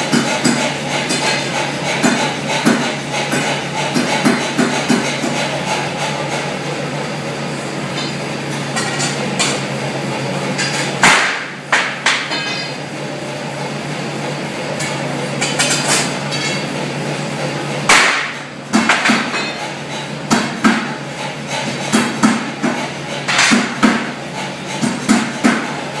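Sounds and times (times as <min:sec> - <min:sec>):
low workshop hum: 0:00.0 - 0:26.0
hammer striking steel: 0:10.6 - 0:12.8, 0:17.9 - 0:24.1.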